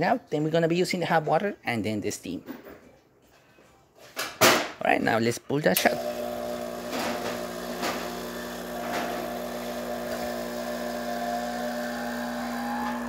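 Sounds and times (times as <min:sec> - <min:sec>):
espresso machine pump humming: 0:05.9 - 0:13.0.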